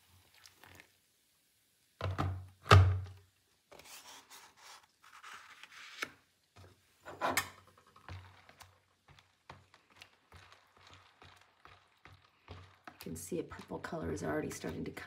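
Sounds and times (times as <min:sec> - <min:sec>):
paper rustling: 0:03.7 - 0:06.2.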